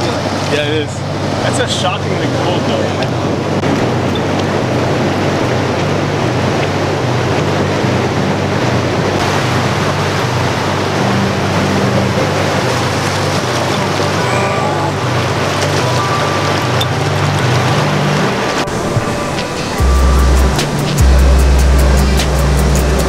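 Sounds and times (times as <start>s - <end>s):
ocean surf breaking: 0.0s - 23.0s
low rumble: 16.6s - 23.0s.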